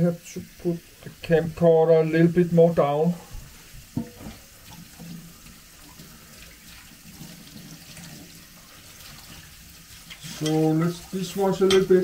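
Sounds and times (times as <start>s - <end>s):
tap running into metal sink: 3.9s - 4.4s.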